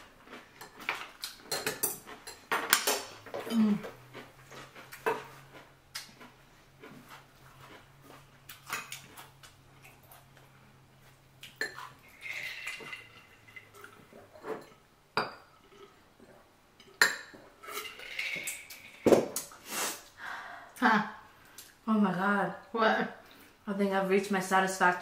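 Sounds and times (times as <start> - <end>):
utensils clinking against dishes: 1.5 - 3.2, 17.0 - 19.0.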